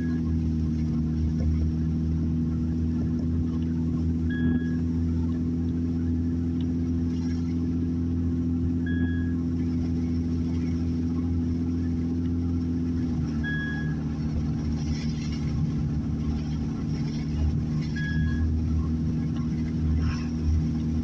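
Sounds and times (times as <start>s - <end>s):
car engine and road noise: 0.0s - 21.0s
short high beep: 4.2s - 5.0s, 8.8s - 9.5s, 13.4s - 14.0s, 17.8s - 18.5s.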